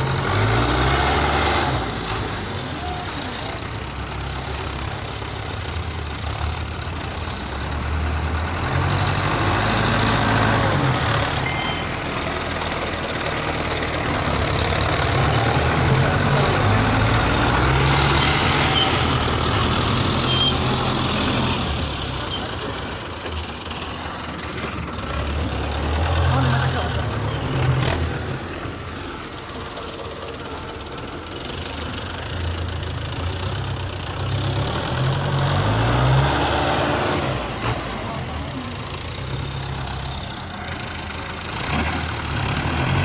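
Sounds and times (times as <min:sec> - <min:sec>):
diesel tractor engine under load: 0:00.0 - 0:43.0.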